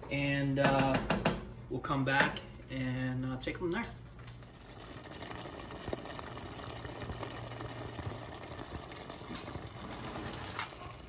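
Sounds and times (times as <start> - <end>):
chili bubbling with small pops: 3.8 - 11.0.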